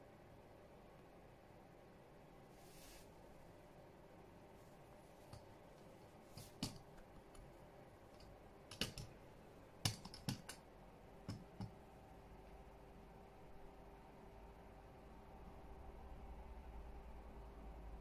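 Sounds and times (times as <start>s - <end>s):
light irregular clicks and taps: 5.2s - 9.2s, 9.8s - 10.6s, 11.2s - 11.8s.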